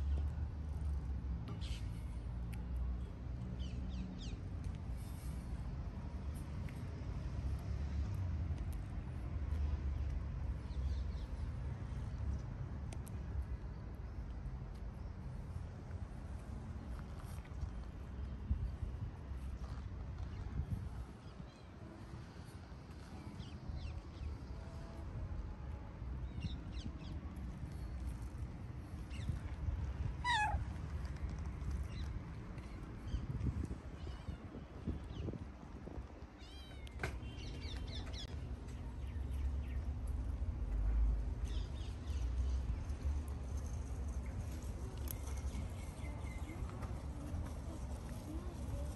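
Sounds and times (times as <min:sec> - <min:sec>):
low outdoor rumble: 0:00.0 - 0:48.9.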